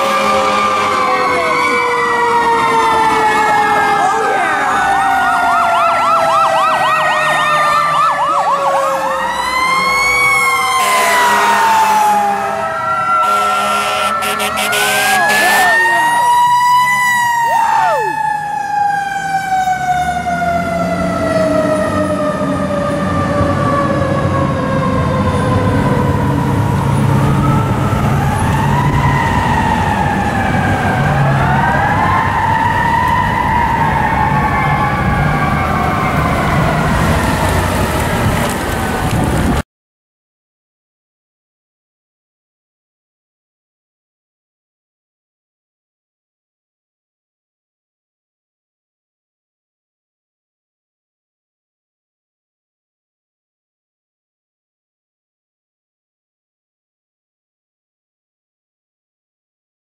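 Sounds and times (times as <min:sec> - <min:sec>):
fast yelping siren: 0:00.0 - 0:38.3
diesel engines rumbling: 0:00.0 - 0:39.6
fire truck sirens wailing: 0:00.0 - 0:39.6.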